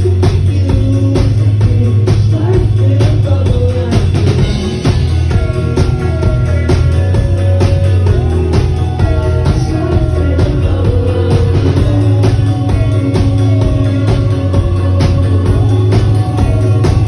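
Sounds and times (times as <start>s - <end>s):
bass guitar: 0.0s - 17.0s
drum kit beat: 0.0s - 17.0s
electric guitar melody: 4.3s - 17.0s.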